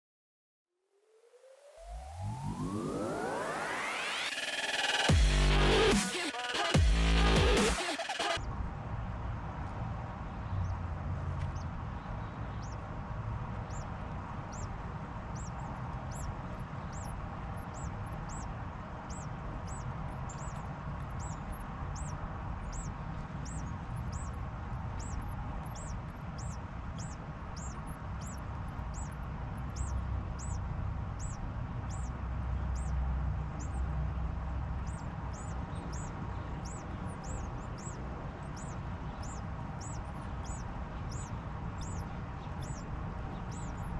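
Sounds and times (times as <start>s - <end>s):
low rumble: 8.4s - 43.9s
small bird high thin calls: 14.5s - 14.7s, 15.3s - 30.6s, 31.2s - 32.1s, 32.7s - 33.0s, 34.8s - 43.9s.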